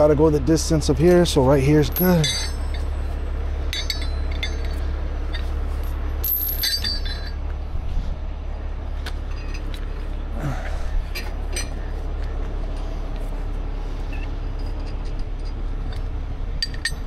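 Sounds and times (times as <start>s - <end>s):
steady low rumble: 0.0s - 17.0s
metal chain clinking: 1.7s - 7.4s, 9.3s - 9.8s, 11.1s - 11.8s, 14.1s - 17.0s.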